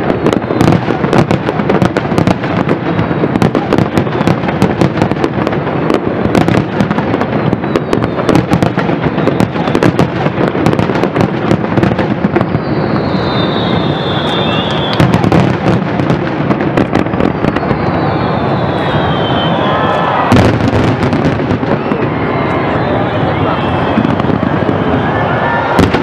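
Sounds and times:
fireworks bangs and crackles: 0:00.0 - 0:26.0
high falling whistle: 0:12.4 - 0:15.2, 0:17.2 - 0:20.6, 0:21.6 - 0:26.0.

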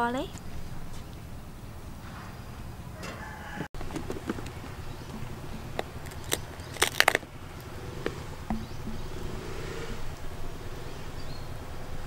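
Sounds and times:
crab shell cracking: 0:05.5 - 0:07.4.

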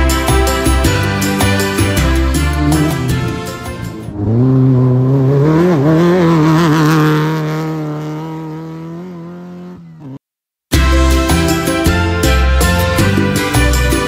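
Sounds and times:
race vehicle engine revving: 0:02.4 - 0:10.2.

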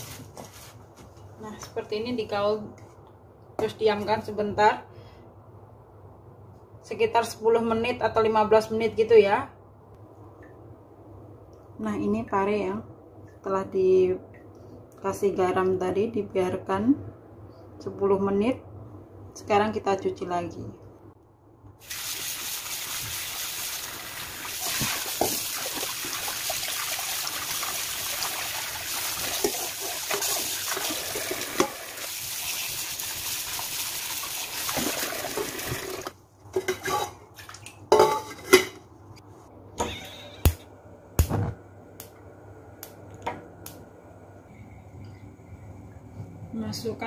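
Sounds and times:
tap water running: 0:21.8 - 0:36.2.

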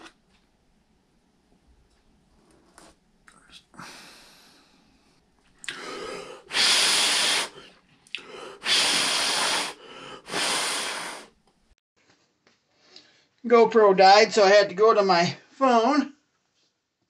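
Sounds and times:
man blowing hard breaths: 0:05.6 - 0:11.4.

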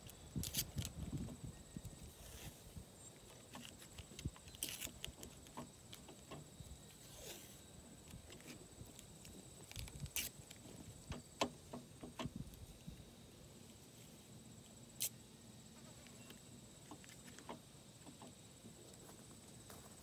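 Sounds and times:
tape ripping off roll: 0:00.4 - 0:01.1, 0:03.5 - 0:05.6, 0:09.6 - 0:10.6.

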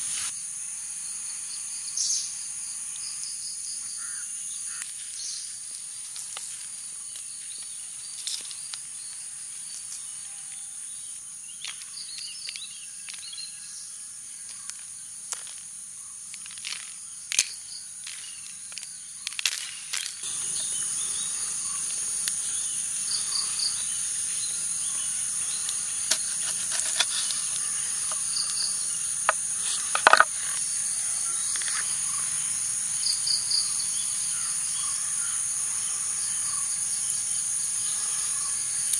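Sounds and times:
high-pitched insect chorus: 0:00.0 - 0:38.9
sharp clicks and taps: 0:29.3 - 0:30.3.

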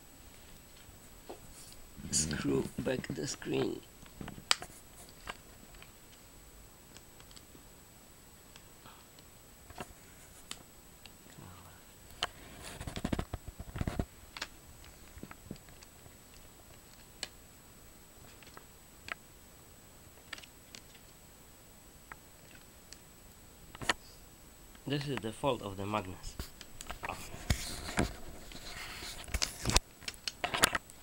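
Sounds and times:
rustling and knocking: 0:12.5 - 0:14.1.

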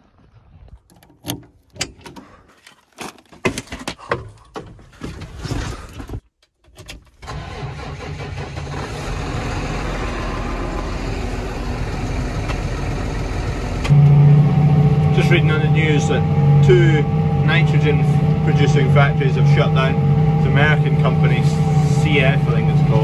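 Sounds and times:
clunks and knocks: 0:00.8 - 0:07.3
tractor cab door opening: 0:00.9 - 0:08.2
diesel engine running: 0:07.3 - 0:23.0.

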